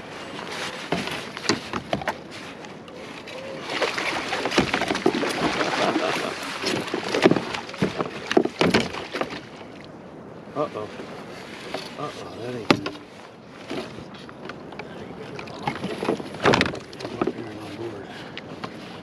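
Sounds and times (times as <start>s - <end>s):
water splashing against kayak: 0.0s - 19.0s
sharp knocks: 6.6s - 9.4s, 12.6s - 13.1s.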